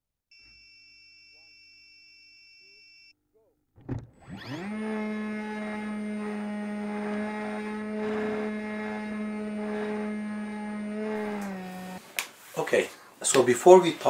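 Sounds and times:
thump at launch: 0:03.8 - 0:04.1
electric motor propeller whine: 0:04.0 - 0:12.0.

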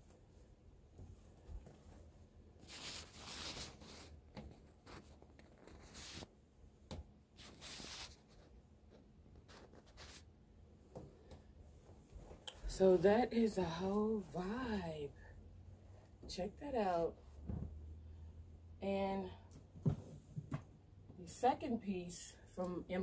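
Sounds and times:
clothing rustling: 0:00.0 - 0:06.4, 0:07.3 - 0:08.6.

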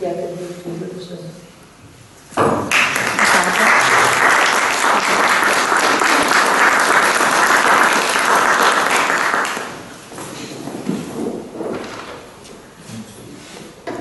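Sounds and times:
audience applauding: 0:02.7 - 0:09.9.

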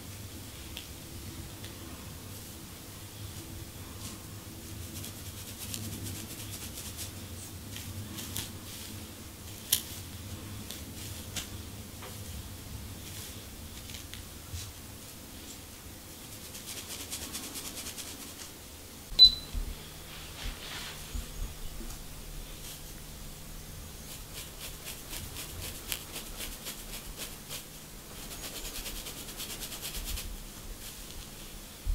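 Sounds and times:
fingernails scratching scalp: 0:24.0 - 0:30.3.

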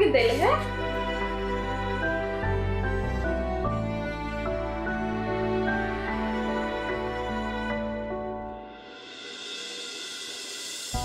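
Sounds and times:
background music melody: 0:00.0 - 0:09.0
cymbal swell: 0:08.5 - 0:11.0
rising hiss: 0:08.6 - 0:11.0.

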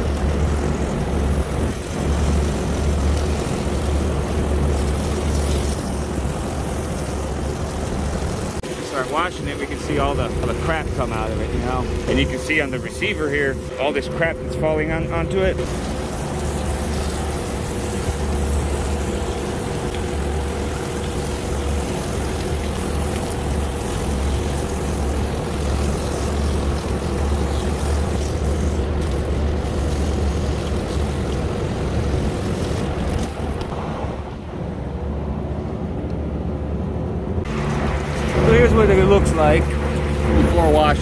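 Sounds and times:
hose spray on metal coil: 0:00.0 - 0:14.3, 0:15.0 - 0:33.6
low rumble: 0:28.8 - 0:41.0.

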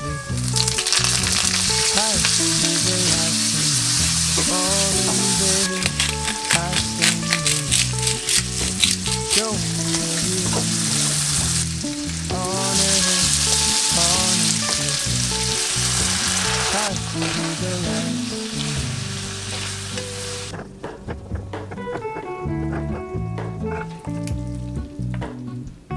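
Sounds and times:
food sizzling in a frying pan: 0:00.4 - 0:20.5.

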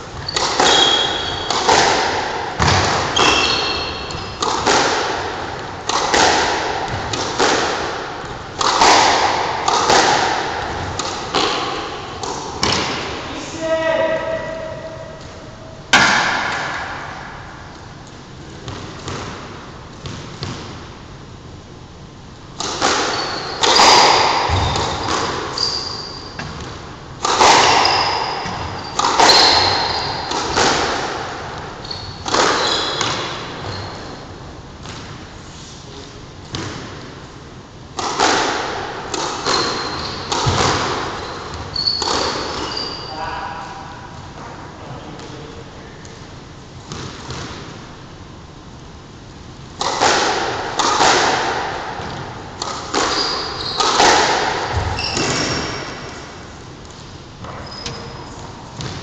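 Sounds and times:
squash ball hits echoing: 0:00.1 - 0:17.7, 0:22.5 - 0:34.2, 0:36.5 - 0:37.2, 0:37.9 - 0:43.1, 0:46.9 - 0:47.9, 0:49.8 - 0:56.6, 0:57.4 - 0:59.0
shoes squeaking on wooden floor: 0:02.6 - 0:04.4, 0:23.1 - 0:26.4, 0:41.2 - 0:43.1, 0:53.1 - 0:53.9, 0:54.7 - 0:55.8, 0:57.4 - 0:58.5.

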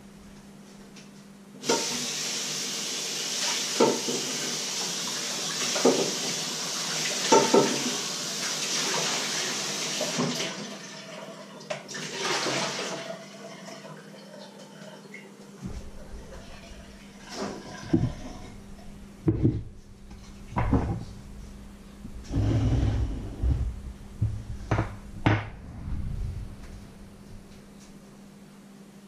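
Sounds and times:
water running into sink: 0:01.6 - 0:15.0
items knocking in sink: 0:20.6 - 0:21.1, 0:24.2 - 0:25.5.

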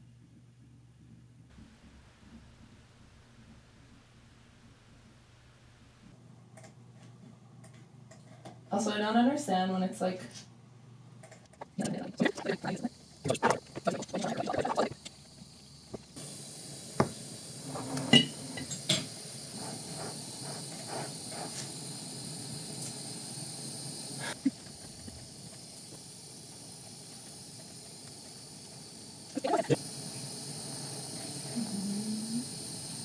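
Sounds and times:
torch flame hissing: 0:01.5 - 0:06.2, 0:11.7 - 0:33.0.

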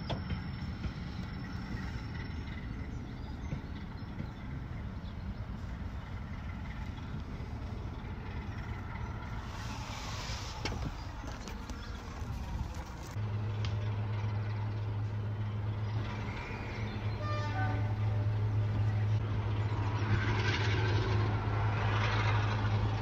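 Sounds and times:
diesel locomotive rumbling: 0:00.0 - 0:23.0
train hiss: 0:09.4 - 0:10.8.

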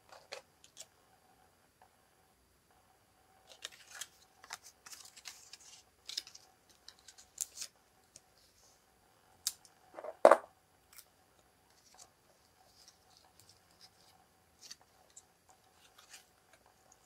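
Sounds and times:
crisp paper rustles and clicks: 0:03.5 - 0:08.2.

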